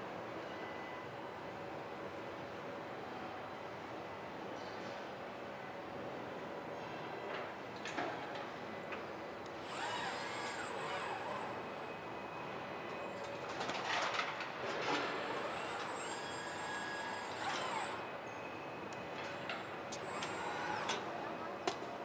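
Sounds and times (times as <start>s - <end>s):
steady factory hum: 0.0s - 22.0s
robot arm drives whining: 9.6s - 11.8s, 14.8s - 18.0s, 20.0s - 21.1s.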